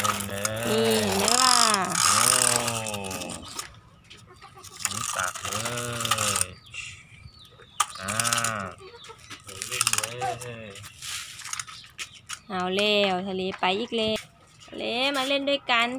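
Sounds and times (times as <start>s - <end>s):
man imitating engine noises: 0.0s - 3.7s, 4.8s - 7.1s, 8.0s - 8.9s.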